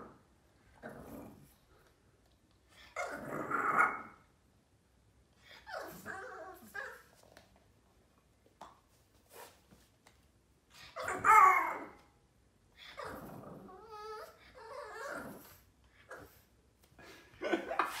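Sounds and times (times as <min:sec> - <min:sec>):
puppy growling whine: 0:00.0 - 0:01.6, 0:02.8 - 0:04.2, 0:05.5 - 0:07.1, 0:10.9 - 0:12.1, 0:12.8 - 0:16.4.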